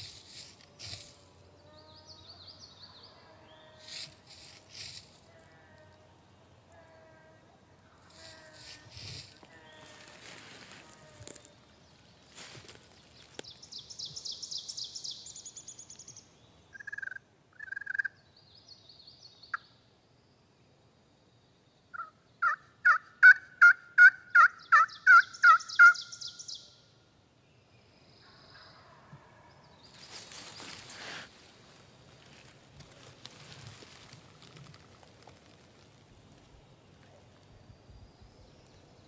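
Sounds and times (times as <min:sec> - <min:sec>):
turkey yelping: 0:22.0 - 0:26.0.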